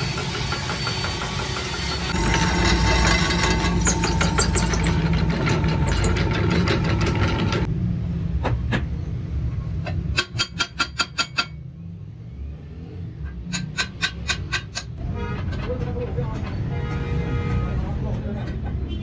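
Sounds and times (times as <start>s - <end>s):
drill press running: 0.0s - 7.7s
low machine hum: 0.0s - 7.7s.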